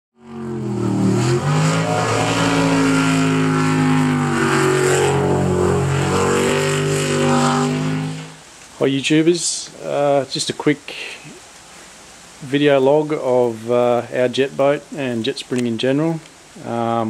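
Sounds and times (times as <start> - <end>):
boat engine revving: 0.1 - 8.5.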